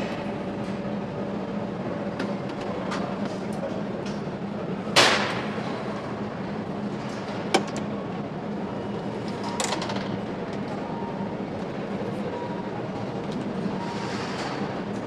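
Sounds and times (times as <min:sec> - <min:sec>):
factory hall hum: 0:00.0 - 0:15.0
loud sharp knock: 0:05.0 - 0:05.5.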